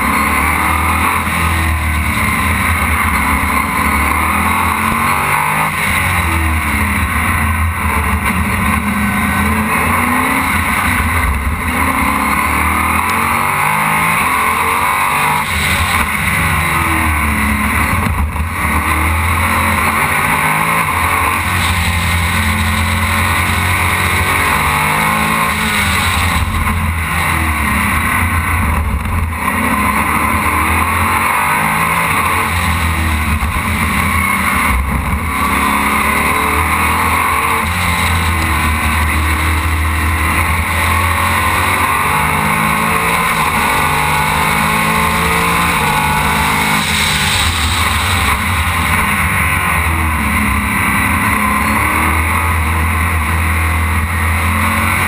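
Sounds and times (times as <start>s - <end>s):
race car engine revving: 0.0s - 55.0s.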